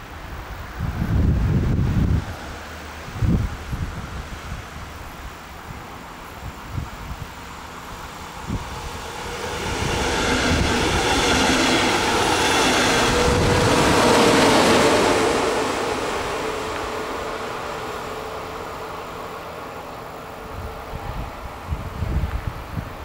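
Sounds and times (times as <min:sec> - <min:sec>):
train passing: 0:00.0 - 0:23.0
wheels rolling on rails: 0:06.0 - 0:20.0.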